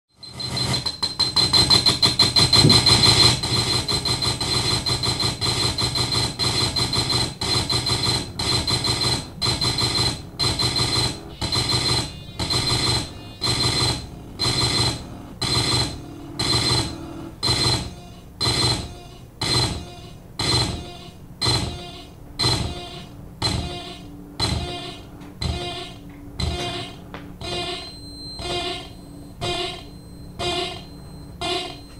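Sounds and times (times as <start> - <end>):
harsh electronic noise bursts: 0.2 - 31.9
steady high tone: 21.8 - 31.9.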